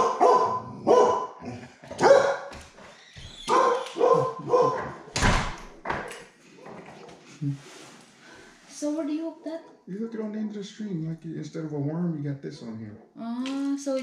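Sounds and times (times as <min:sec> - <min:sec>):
dog barking: 0:00.0 - 0:02.6, 0:03.5 - 0:05.1.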